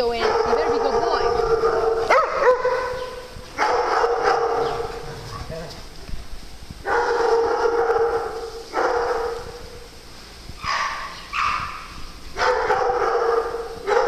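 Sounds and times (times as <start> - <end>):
dog howling: 0.2 - 5.6.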